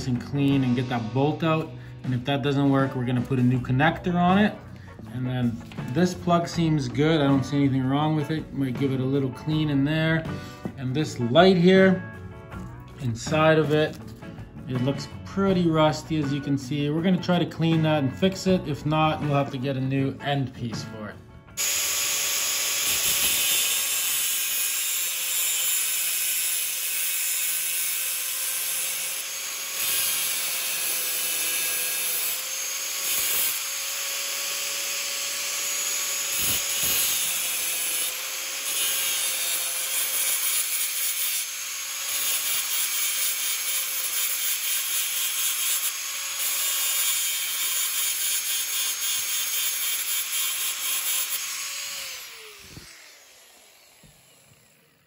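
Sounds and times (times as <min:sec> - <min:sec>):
angle grinder grinding metal: 0:21.6 - 0:55.0.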